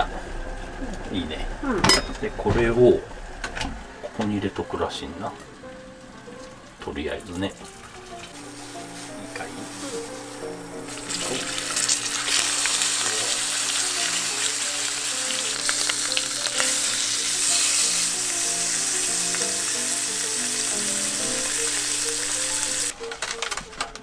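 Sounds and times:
soft background music: 0.0s - 24.0s
beef sizzling in a pot: 7.2s - 22.9s.

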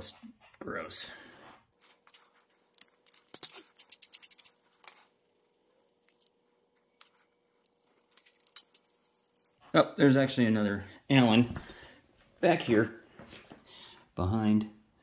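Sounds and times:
hand tools clicking and scraping: 1.8s - 9.6s.

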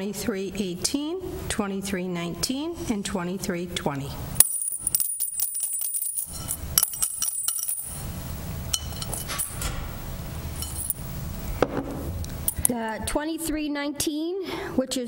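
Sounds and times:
metal tags clinking in a bowl: 4.4s - 8.1s, 8.7s - 9.8s, 10.5s - 11.0s.

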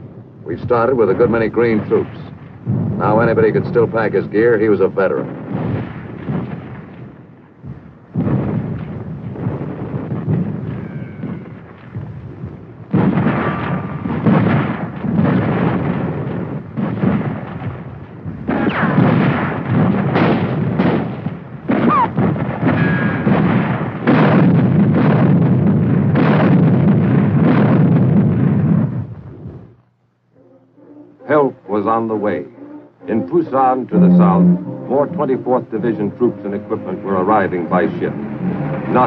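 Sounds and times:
artillery blasts: 0.0s - 29.8s
gunfire: 5.2s - 28.9s.

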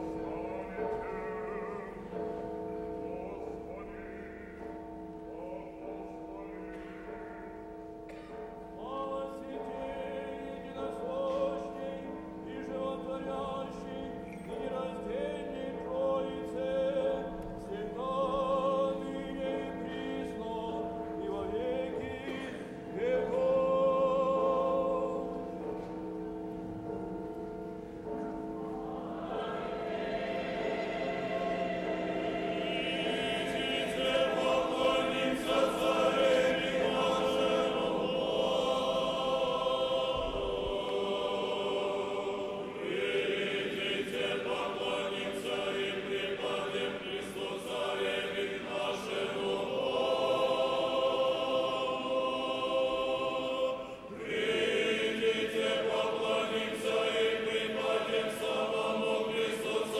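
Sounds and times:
choir singing a cappella chant: 0.0s - 2.2s, 8.8s - 25.3s, 28.7s - 59.9s.

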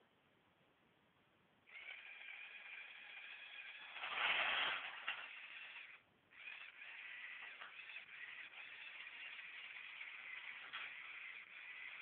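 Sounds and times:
electric motor whining through gears: 1.7s - 12.0s.

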